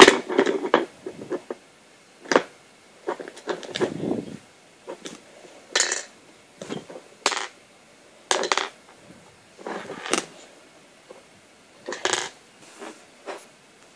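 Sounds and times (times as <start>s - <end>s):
plastic parts clicking and clattering: 0.0s - 1.6s, 3.1s - 4.0s, 8.3s - 8.8s, 11.8s - 12.4s.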